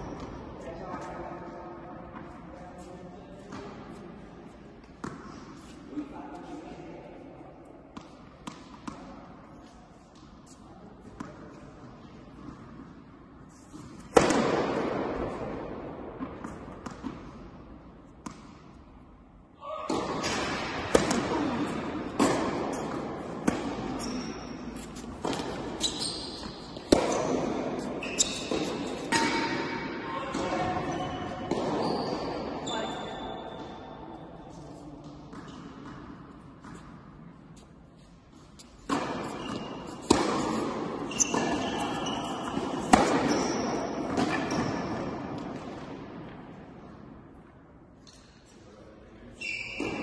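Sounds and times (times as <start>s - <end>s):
tennis ball hit and bouncing: 4.8s - 5.7s, 7.9s - 9.4s, 13.8s - 17.5s, 18.1s - 18.8s, 19.9s - 32.6s, 38.6s - 47.0s
shoes squeaking on court: 21.1s - 36.0s, 37.6s - 45.0s, 49.3s - 50.0s.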